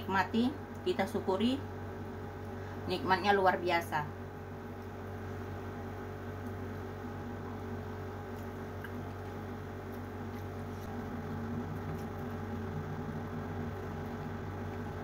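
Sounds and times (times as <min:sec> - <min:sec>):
steady low hum: 0:00.0 - 0:15.0
chewing: 0:08.3 - 0:10.9.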